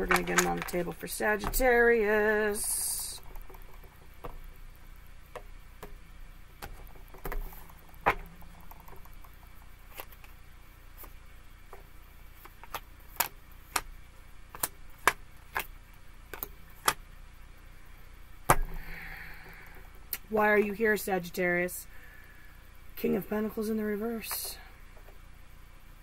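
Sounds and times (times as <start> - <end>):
cards being handled: 0.0 - 1.8, 9.9 - 11.8, 12.4 - 13.9, 14.5 - 15.7.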